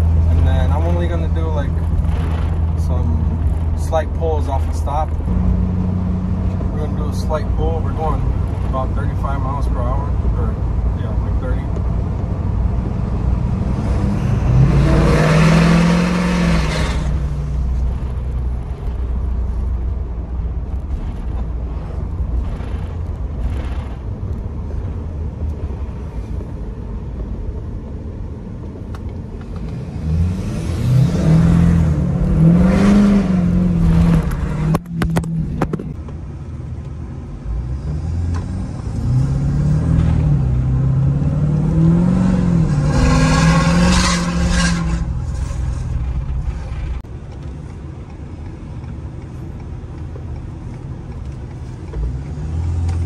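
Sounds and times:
diesel truck engine revving: 0:00.0 - 0:25.0, 0:29.7 - 0:35.7, 0:37.5 - 0:47.1.

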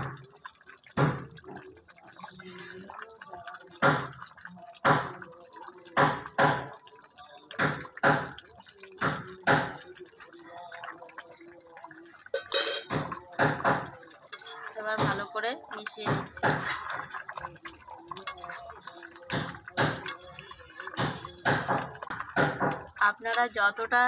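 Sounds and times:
thick gravy bubbles plopping: 0:00.0 - 0:24.0.

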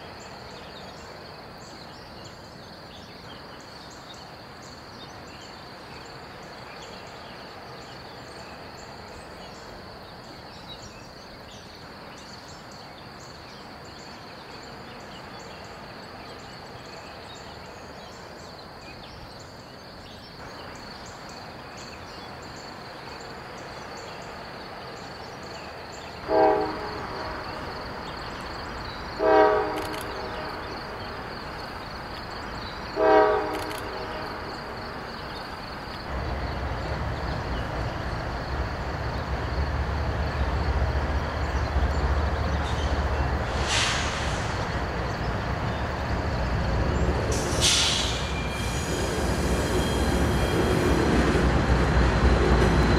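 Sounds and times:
train rumbling: 0:00.0 - 0:52.9
locomotive air horn blasts: 0:26.2 - 0:27.7, 0:29.2 - 0:30.8, 0:33.0 - 0:34.6.

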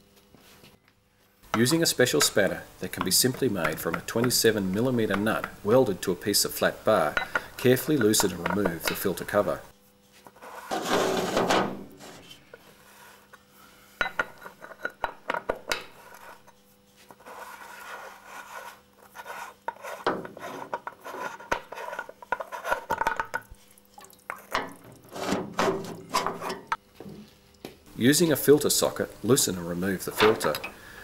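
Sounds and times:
spanner scraping metal cover: 0:10.6 - 0:12.4.

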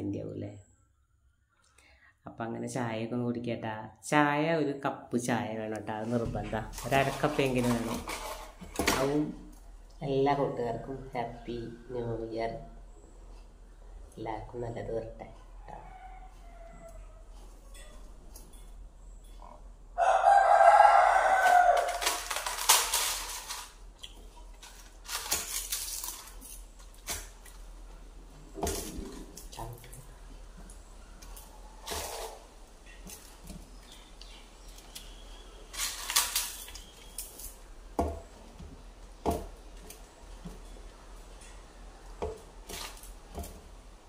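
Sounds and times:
rooster crowing: 0:15.6 - 0:17.4, 0:20.0 - 0:22.4.

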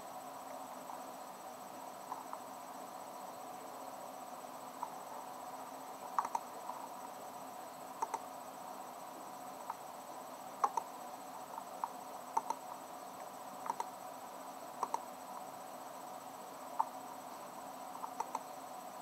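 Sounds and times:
steady background hiss: 0:00.0 - 0:19.0
computer mouse clicking: 0:06.2 - 0:06.5, 0:08.0 - 0:08.2, 0:10.6 - 0:10.9, 0:11.8 - 0:12.6, 0:13.6 - 0:13.9, 0:14.8 - 0:15.0, 0:17.9 - 0:18.5.

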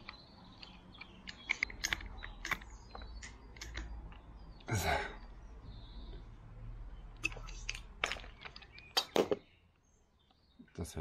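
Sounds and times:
hand tools clicking and knocking: 0:00.0 - 0:04.3.

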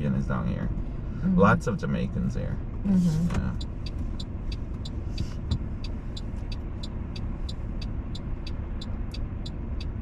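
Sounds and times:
car engine idling rumble: 0:00.0 - 0:10.0
rapid regular ticking: 0:03.6 - 0:10.0.

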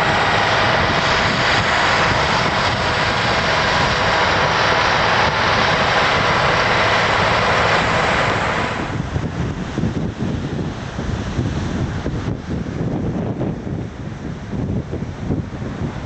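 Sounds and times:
bulldozer engine running: 0:00.0 - 0:16.0
wind buffeting microphone: 0:00.0 - 0:16.0.

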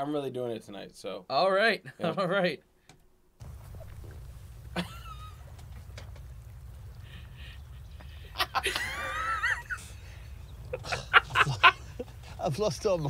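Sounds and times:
low steady hum: 0:03.4 - 0:13.0
man laughing loudly: 0:04.7 - 0:05.5, 0:08.2 - 0:10.1, 0:10.7 - 0:12.3.

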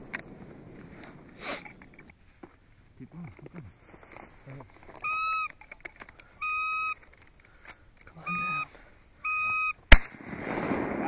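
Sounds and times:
waterfowl honking calls: 0:04.9 - 0:07.1, 0:08.2 - 0:09.8.

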